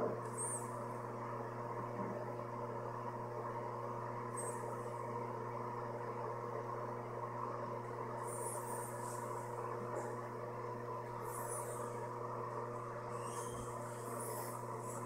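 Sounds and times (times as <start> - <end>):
mechanical hum: 0.0 - 15.0
faint high chirps: 13.1 - 15.0.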